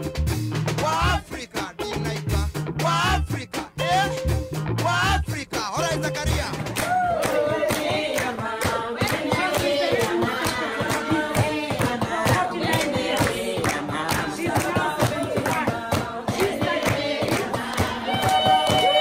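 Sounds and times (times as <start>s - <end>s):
group singing: 0.8s - 2.2s, 2.8s - 5.2s, 6.8s - 19.0s
hand clapping: 6.6s - 19.0s.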